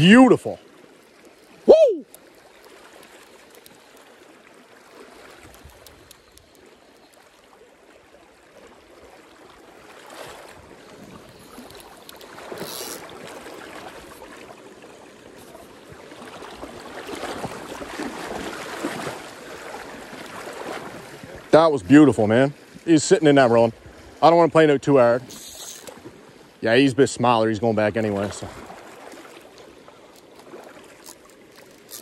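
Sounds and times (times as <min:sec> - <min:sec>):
river water rushing: 0:01.4 - 0:06.0, 0:28.1 - 0:32.0.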